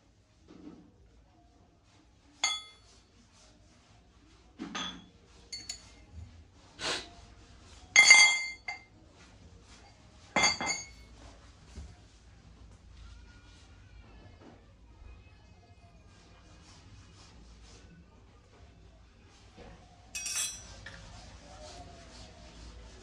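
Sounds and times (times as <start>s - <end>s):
brass utensils clinking: 20.2s - 20.9s.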